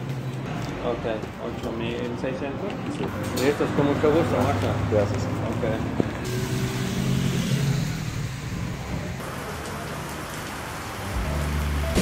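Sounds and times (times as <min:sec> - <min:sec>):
passing vehicle engines humming: 0:02.7 - 0:09.2
rain falling on wet street: 0:04.6 - 0:12.0.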